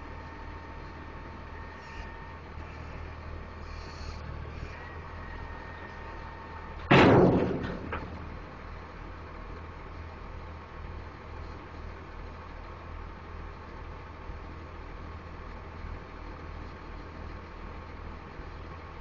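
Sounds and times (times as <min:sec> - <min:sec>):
loud bang on steel: 0:06.9 - 0:08.4.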